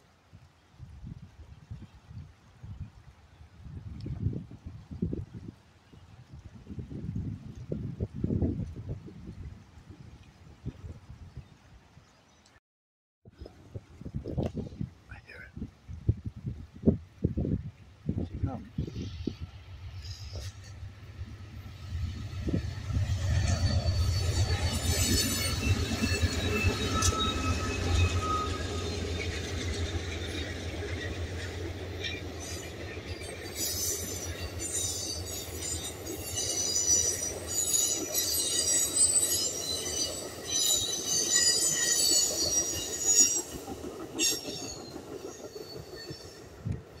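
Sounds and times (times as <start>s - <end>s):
diesel locomotive rumble: 18.7s - 36.1s
train cars rolling on rails: 18.8s - 47.0s
rail clacks: 18.9s - 47.0s
high-pitched wheel squeal: 22.0s - 29.9s, 32.1s - 46.5s.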